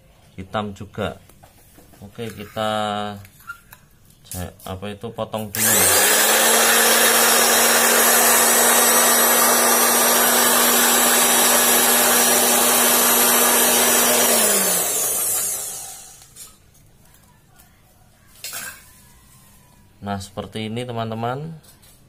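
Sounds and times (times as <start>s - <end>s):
machine winding down: 5.5s - 16.3s
cloth cutting machine humming: 5.6s - 16.4s.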